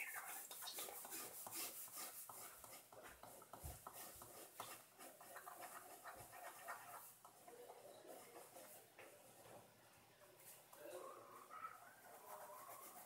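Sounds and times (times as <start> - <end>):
pen scratching on paper: 0.0 - 8.9, 11.9 - 13.0.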